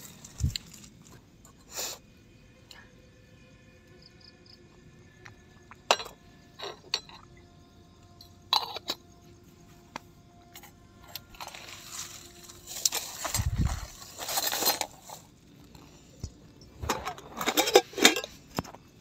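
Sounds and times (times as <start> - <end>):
metal cup and lid clinking: 5.7 - 7.4, 8.2 - 9.1, 16.7 - 18.7.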